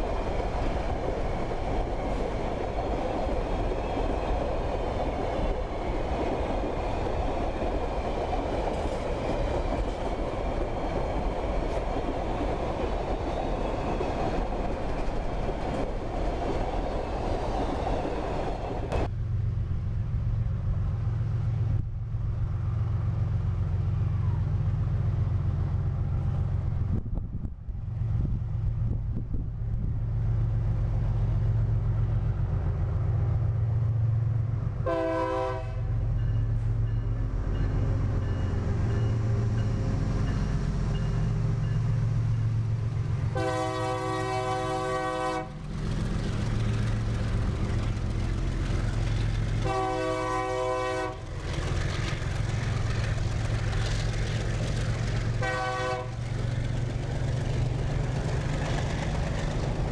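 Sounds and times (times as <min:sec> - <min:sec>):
freight wagons rolling on rails: 0:00.0 - 0:19.1, 0:45.4 - 0:59.9
diesel locomotive engine running: 0:00.0 - 0:59.9
train air horn blasts: 0:34.8 - 0:36.0, 0:43.3 - 0:45.6, 0:49.6 - 0:51.3, 0:55.4 - 0:56.2.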